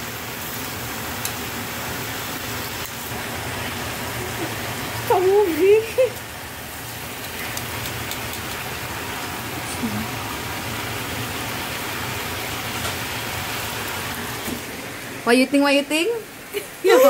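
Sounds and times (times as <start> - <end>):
steak sizzling in a frying pan: 0.0 - 15.1.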